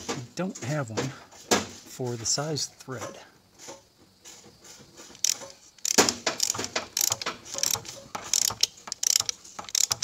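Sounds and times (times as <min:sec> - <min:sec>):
ratcheting wrench clicking: 0:05.1 - 0:10.0.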